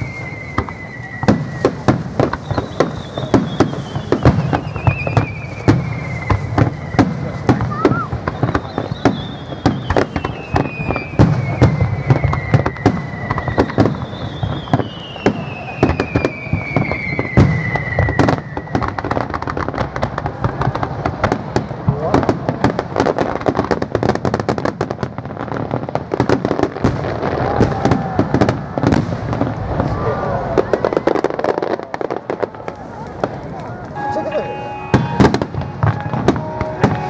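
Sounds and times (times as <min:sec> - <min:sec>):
descending whistle: 0:00.0 - 0:01.8, 0:02.4 - 0:07.1, 0:07.7 - 0:19.2
fireworks crackling and bangs: 0:00.0 - 0:37.0.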